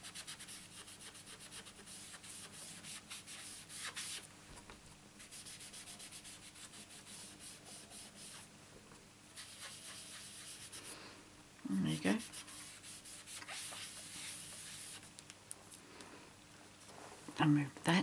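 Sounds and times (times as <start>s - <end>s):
sponge rubbing on cardstock: 0.1s - 4.2s, 5.2s - 8.5s, 9.4s - 10.9s, 12.0s - 15.0s
sponge dabbing ink pad: 5.2s - 8.5s, 9.4s - 10.9s, 12.0s - 15.1s.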